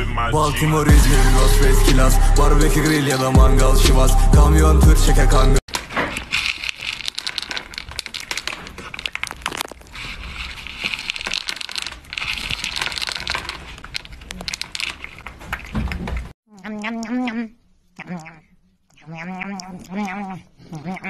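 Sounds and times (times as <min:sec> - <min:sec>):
cat crunching dry kibble: 0:05.7 - 0:16.2
kibble rattling in plastic bowl: 0:05.7 - 0:16.3.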